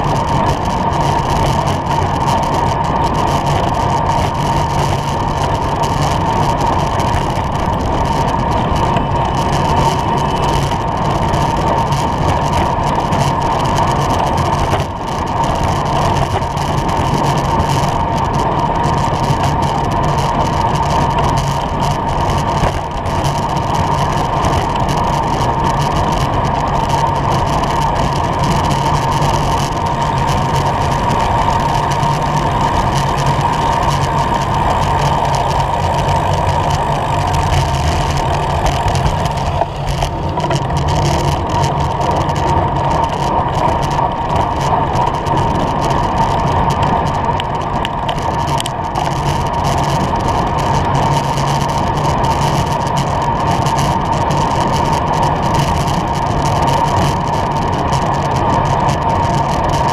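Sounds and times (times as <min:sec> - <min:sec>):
road noise: 0:00.0 - 0:59.9
wind rush on helmet: 0:00.0 - 0:59.9
motor traffic passing: 0:20.7 - 0:48.6.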